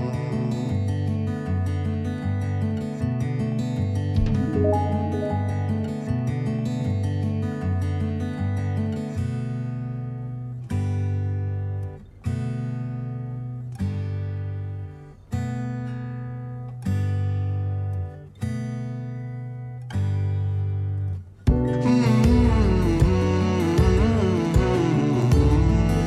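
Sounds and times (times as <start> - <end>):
acoustic guitar chords strummed: 4.0 - 6.7, 21.5 - 26.0.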